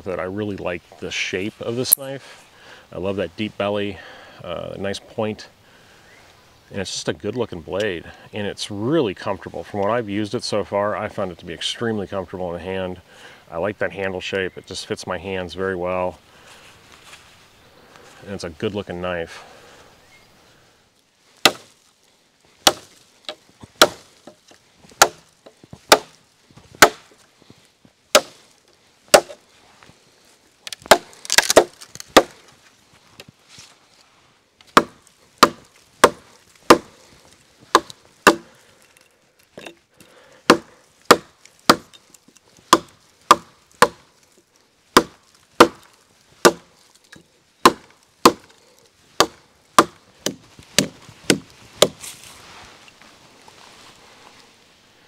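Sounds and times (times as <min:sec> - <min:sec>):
hatchet chopping log: 0:21.4 - 0:21.7, 0:22.6 - 0:24.4, 0:25.0 - 0:26.2, 0:26.8 - 0:27.1, 0:28.1 - 0:28.4, 0:29.1 - 0:29.4, 0:30.7 - 0:32.4, 0:34.7 - 0:37.0, 0:37.7 - 0:38.6, 0:40.5 - 0:44.1, 0:44.9 - 0:48.6, 0:49.2 - 0:52.0.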